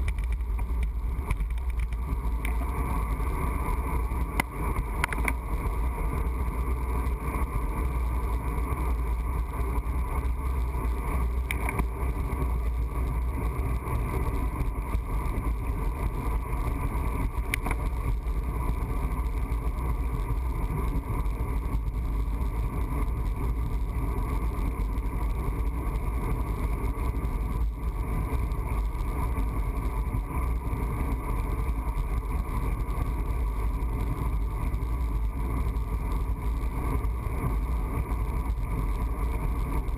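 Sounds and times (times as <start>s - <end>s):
faint clicks: 0.0s - 2.6s, 4.3s - 5.4s, 11.4s - 11.9s, 17.5s - 18.1s
wind rushing over microphone: 0.0s - 39.9s.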